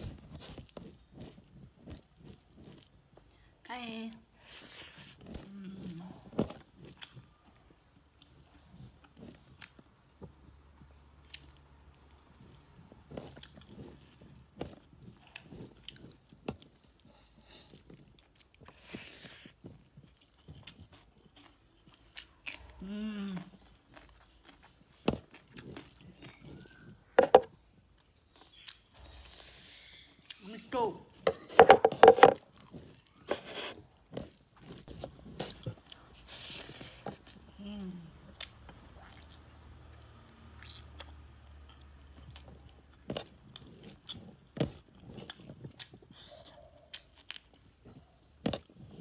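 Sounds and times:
person chewing food: 0:00.0 - 0:03.6, 0:04.4 - 0:29.2, 0:30.1 - 0:30.4, 0:31.1 - 0:49.0
person humming: 0:22.8 - 0:23.5, 0:37.6 - 0:38.1.

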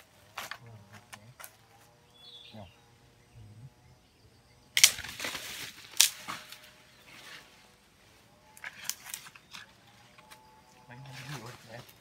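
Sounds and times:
wood snapping: 0:04.8 - 0:06.7, 0:08.6 - 0:10.4
dry leaves rustling: 0:04.8 - 0:12.0.

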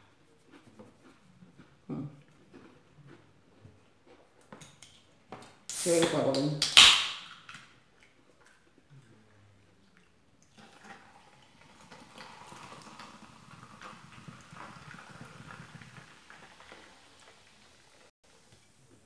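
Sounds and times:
soda fizzing in a glass: 0:10.5 - 0:18.5.

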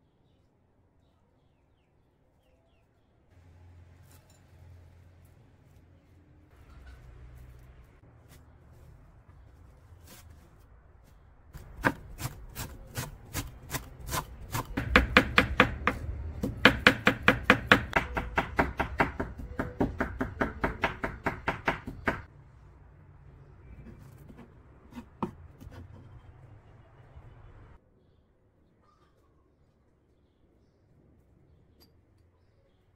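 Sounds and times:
knife chopping on wooden board: 0:11.6 - 0:22.3.

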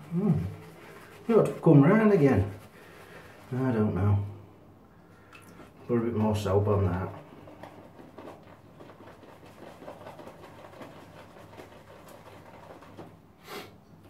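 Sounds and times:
shaving brush swishing on soap: 0:00.0 - 0:04.0, 0:06.2 - 0:13.2.

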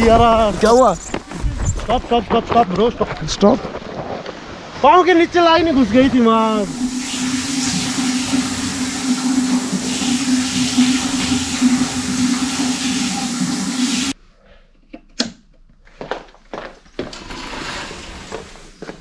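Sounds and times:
wind on microphone: 0:00.0 - 0:11.3.

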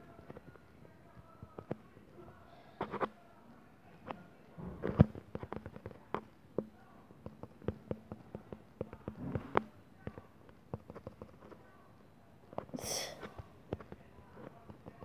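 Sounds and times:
tapping on a touchscreen keyboard: 0:04.8 - 0:11.6.

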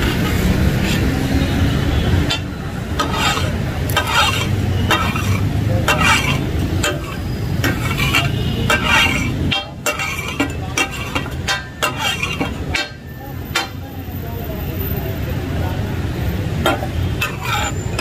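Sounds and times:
metal spatulas striking griddle: 0:00.0 - 0:01.4, 0:02.0 - 0:14.1, 0:16.5 - 0:18.0.

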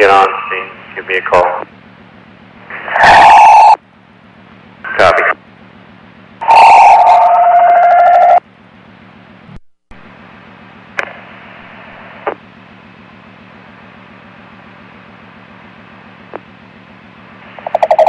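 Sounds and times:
radio scanner hiss: 0:00.0 - 0:01.7, 0:02.7 - 0:03.8, 0:04.9 - 0:05.4, 0:11.0 - 0:12.4
low buzzing hum: 0:00.0 - 0:18.0.

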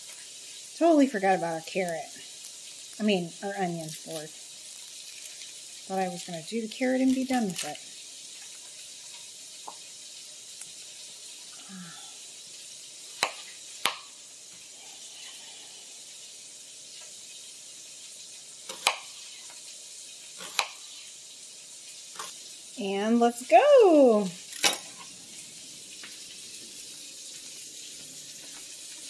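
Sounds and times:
vegetables sizzling in a wok: 0:00.0 - 0:29.0
knife slicing onion: 0:13.1 - 0:14.1, 0:18.6 - 0:19.6, 0:20.3 - 0:21.1.

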